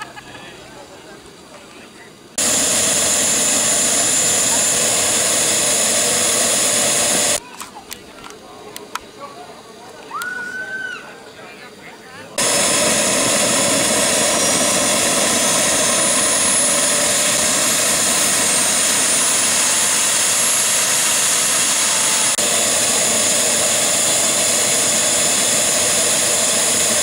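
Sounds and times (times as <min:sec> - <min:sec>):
jet turbine engine whine: 0:02.3 - 0:07.4, 0:12.4 - 0:27.0.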